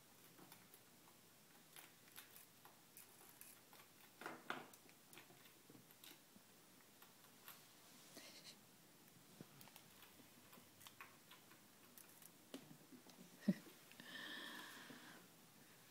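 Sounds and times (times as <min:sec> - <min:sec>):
chinchilla teeth nibbling: 0:00.2 - 0:06.2, 0:09.6 - 0:13.2.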